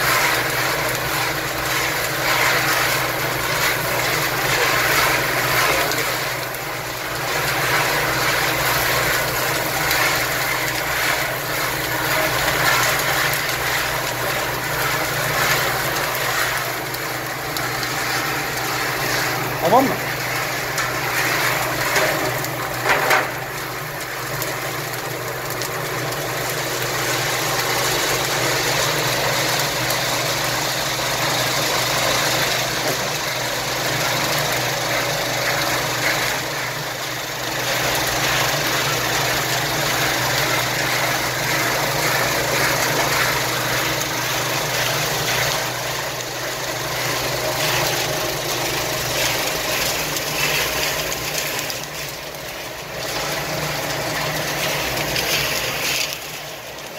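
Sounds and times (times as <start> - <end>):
roasting machine humming: 0.0 - 56.9.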